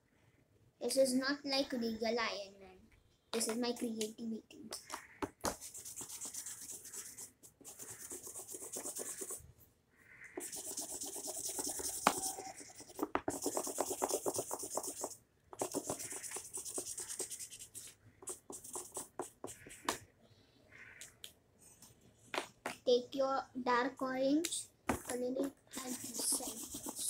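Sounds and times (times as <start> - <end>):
crayon scribbling on paper: 5.0 - 9.4, 10.4 - 20.0, 25.7 - 27.0.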